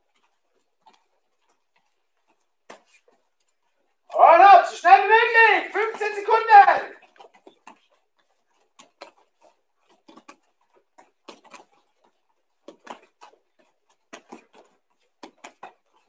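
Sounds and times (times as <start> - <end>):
bare feet slapping on mats: 8.6 - 16.0.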